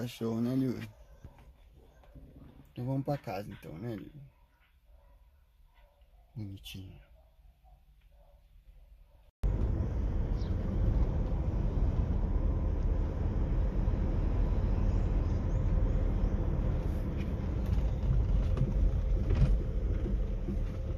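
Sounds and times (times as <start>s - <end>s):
wind and road noise: 9.4s - 20.9s.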